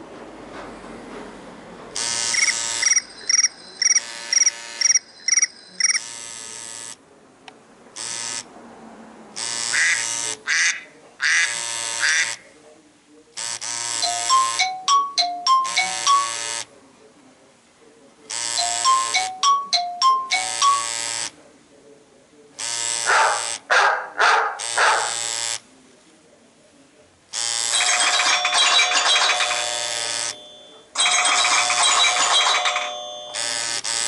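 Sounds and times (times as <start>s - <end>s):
phone ringtones on loudspeaker: 2.0s - 7.0s, 13.4s - 16.7s, 18.3s - 21.3s, 27.4s - 34.0s
chime notes: 2.9s - 4.1s, 4.8s - 6.0s, 27.8s - 33.5s.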